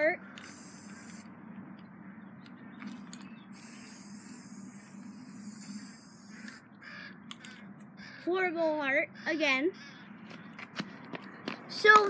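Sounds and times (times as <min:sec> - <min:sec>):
aerosol spray can hissing: 0:00.4 - 0:01.3, 0:03.6 - 0:06.6.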